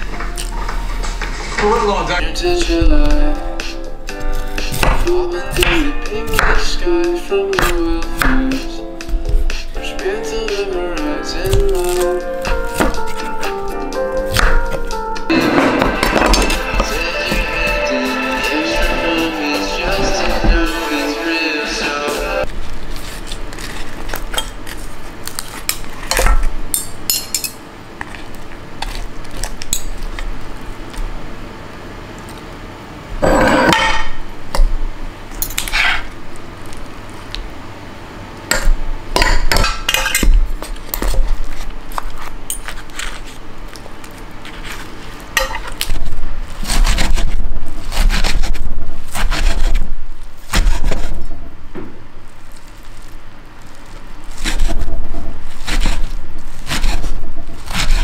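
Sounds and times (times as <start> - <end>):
dishes and utensils clinking: 33.2 - 34.2, 38.5 - 40.4
kitchenware clattering: 33.2 - 34.2, 38.5 - 40.4.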